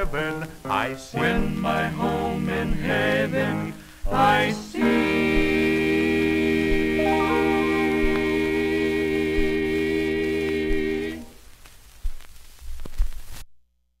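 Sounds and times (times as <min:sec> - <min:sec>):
male vocal quartet singing chord: 0:00.0 - 0:11.3
low thumps: 0:06.4 - 0:09.8
faint crackle: 0:11.2 - 0:13.6.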